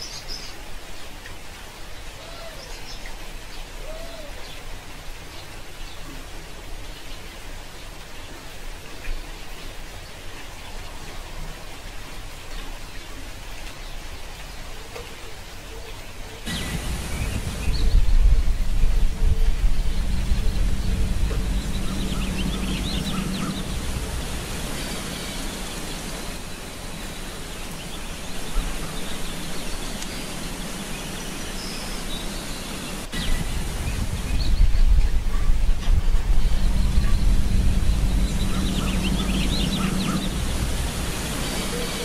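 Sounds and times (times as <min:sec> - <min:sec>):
steady rushing noise: 0:16.5 - 0:42.0.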